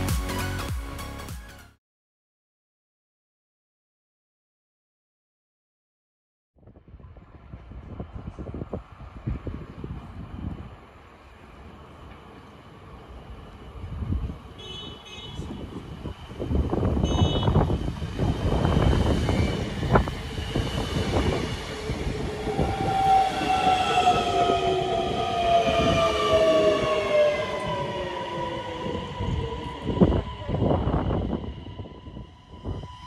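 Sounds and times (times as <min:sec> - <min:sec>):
train rumbling along tracks: 0:06.7 - 0:33.0.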